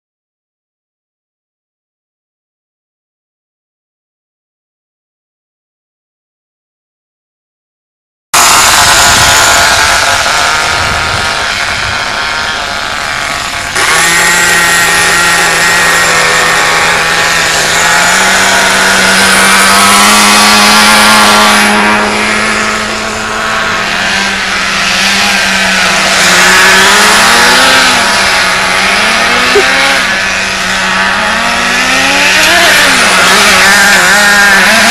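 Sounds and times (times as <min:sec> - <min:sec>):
small engines buzzing: 0:08.4 - 0:34.9.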